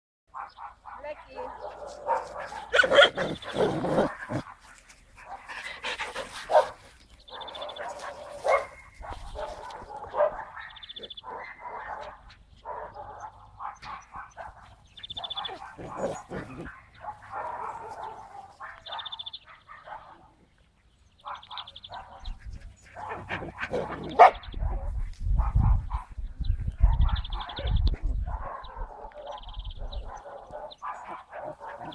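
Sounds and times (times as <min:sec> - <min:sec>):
dogs barking: 0:00.3 - 0:20.4, 0:21.2 - 0:31.9
low rumbling on microphone: 0:23.5 - 0:30.2.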